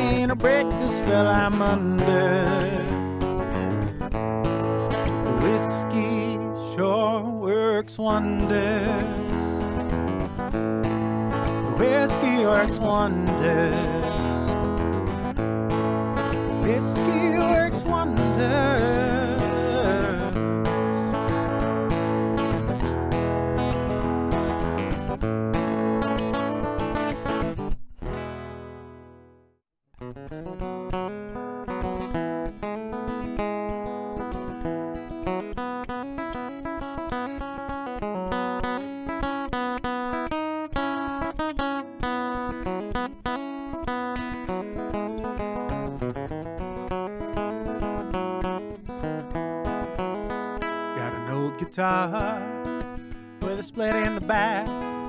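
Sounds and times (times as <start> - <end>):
man singing: 0.0 - 3.0, 5.1 - 9.9, 11.6 - 14.8, 16.4 - 21.6, 50.9 - 55.0
acoustic guitar strumming: 0.0 - 29.4, 30.0 - 55.0.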